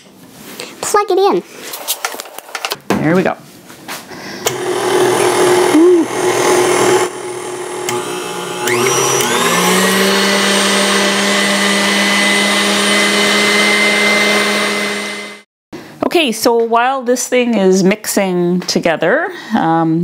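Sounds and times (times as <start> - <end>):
motor whine: 4.4 - 15.4
stand mixer whipping: 4.5 - 15.4.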